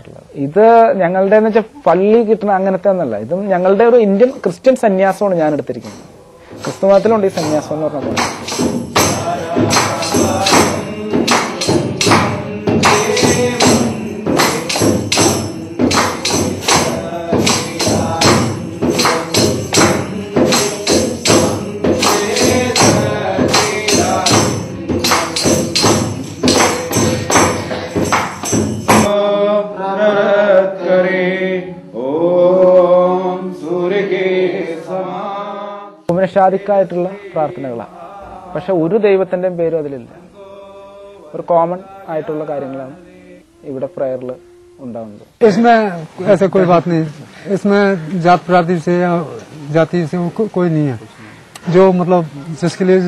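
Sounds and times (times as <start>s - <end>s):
hand percussion beat: 5.5s - 29.2s
chanted prayer: 5.7s - 53.0s
person singing: 5.8s - 38.9s, 40.2s - 46.4s.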